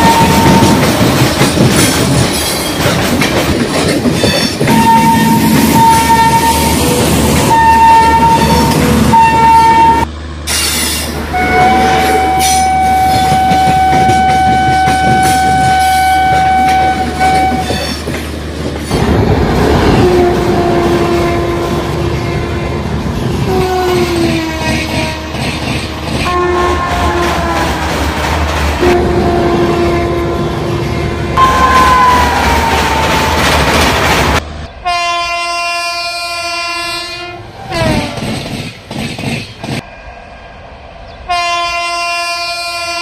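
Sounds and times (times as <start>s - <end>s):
train horn blasts: 0.0s - 0.8s, 4.7s - 6.9s, 7.5s - 10.1s, 11.3s - 17.8s, 19.9s - 22.8s, 23.5s - 27.8s, 28.8s - 33.4s, 34.8s - 38.2s, 41.3s - 43.0s
train rumble and clatter: 0.0s - 43.0s.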